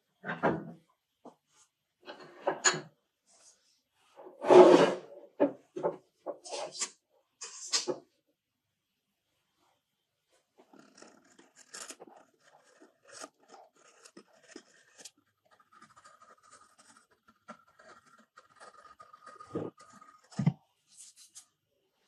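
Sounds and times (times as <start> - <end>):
blade scraping wood: 10.6 - 21.1.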